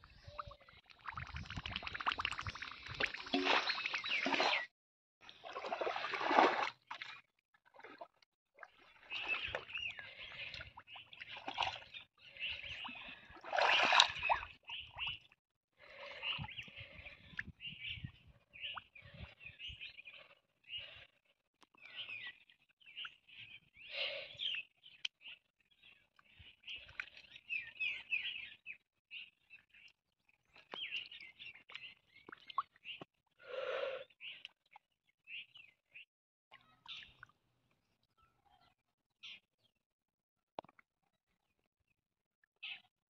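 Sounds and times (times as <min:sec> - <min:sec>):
hands splashing in water: 0:01.0 - 0:04.7, 0:05.4 - 0:07.2, 0:13.3 - 0:14.4.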